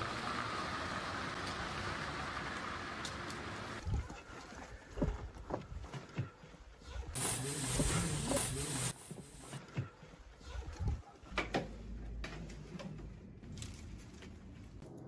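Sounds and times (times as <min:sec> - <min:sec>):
rustling and handling noise: 0:07.2 - 0:15.0.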